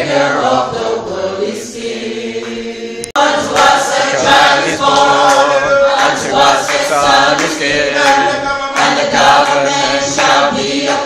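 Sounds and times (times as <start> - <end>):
congregation singing a hymn: 0.0 - 11.0.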